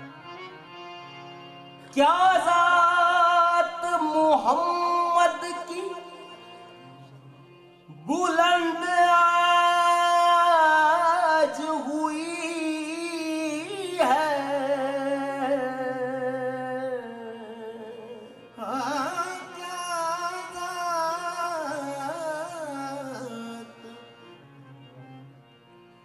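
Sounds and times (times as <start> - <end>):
solo voice singing devotional song: 7.9 - 24.0.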